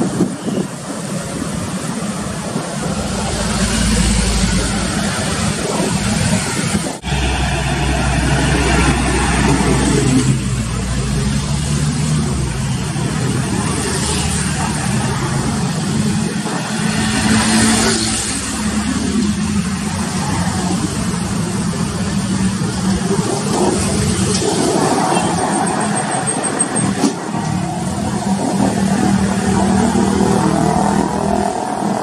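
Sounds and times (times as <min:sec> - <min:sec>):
vehicles passing close by: 0:00.0 - 0:32.0
low engine drone: 0:01.9 - 0:32.0.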